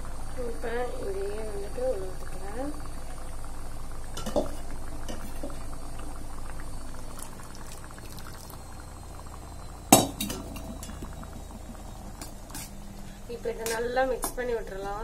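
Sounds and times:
water pouring into pan: 4.0s - 13.3s.

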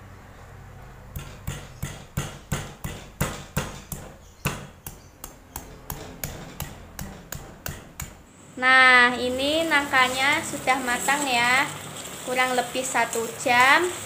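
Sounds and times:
pestle pounding in a mortar: 1.1s - 8.2s.

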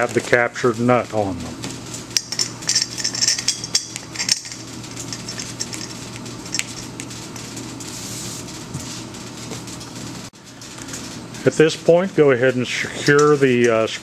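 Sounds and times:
steady low hum: 0.0s - 14.0s
metallic clinks of steel tubes: 2.2s - 6.9s.

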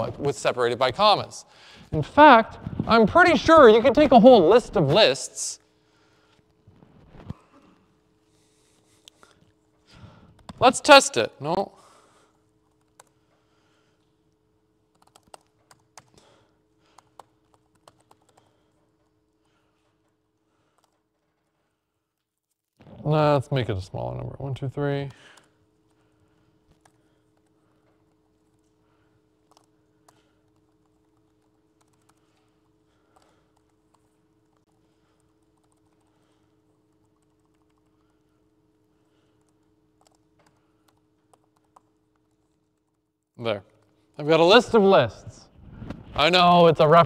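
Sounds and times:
steady low hum: 0.0s - 22.2s, 22.8s - 47.0s
typing on computer keyboard: 12.6s - 13.2s, 14.9s - 16.3s, 16.9s - 19.2s, 20.7s - 21.2s, 29.4s - 38.3s, 39.1s - 43.1s
low hum: 44.7s - 47.0s.

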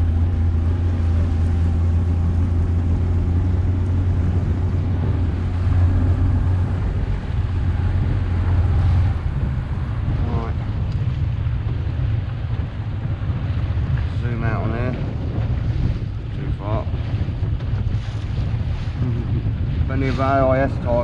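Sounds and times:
outboard motor humming: 0.0s - 21.0s
water against boat hull: 0.0s - 21.0s.

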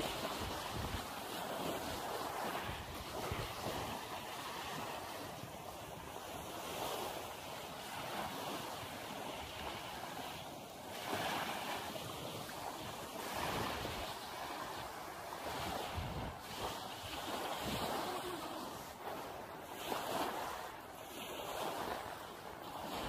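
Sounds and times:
wind on microphone: 0.0s - 7.3s, 11.0s - 20.7s
small waves washing on shore: 0.0s - 23.0s.

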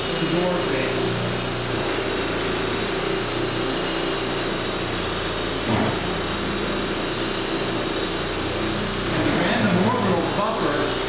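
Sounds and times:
electric orbital polisher running: 0.0s - 11.0s.

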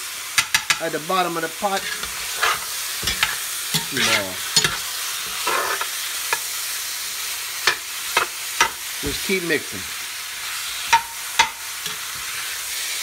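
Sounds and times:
meat sizzling in hot oil: 0.0s - 13.0s
metal spoon scraping pot: 1.7s - 6.4s.

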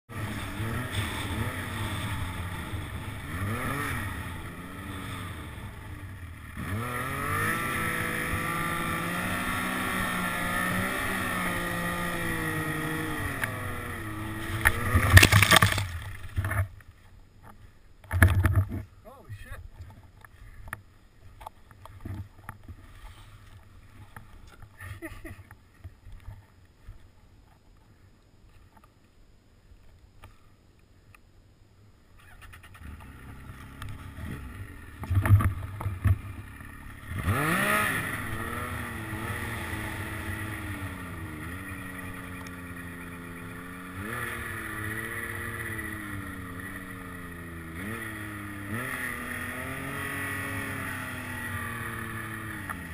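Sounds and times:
snowmobile engine revving: 0.1s - 16.4s, 32.4s - 52.9s.

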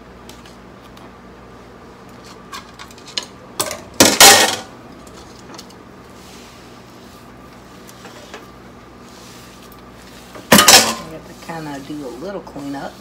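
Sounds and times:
kitchen items clicking and knocking: 2.6s - 4.7s, 10.5s - 11.2s.

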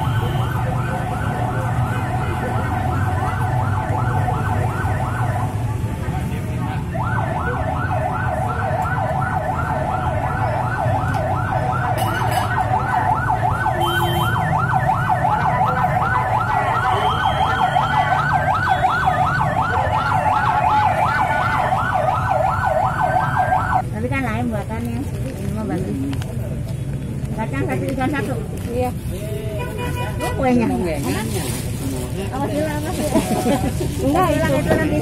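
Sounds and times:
siren yelping: 0.0s - 5.9s, 6.8s - 23.9s
traffic rumble: 0.0s - 35.0s.

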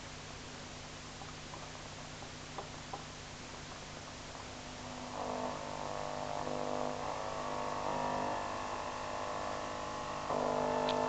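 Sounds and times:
low mains hum and hiss: 0.0s - 11.0s
steady radio tones: 4.1s - 11.0s.

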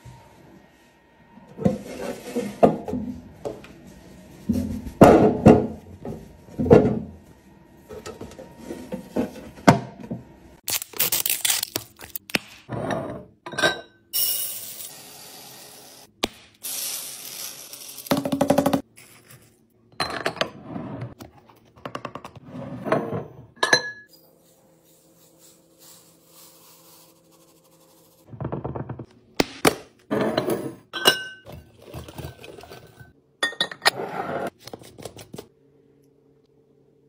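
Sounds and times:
glass jars clinking: 23.6s - 24.2s, 30.4s - 31.6s.

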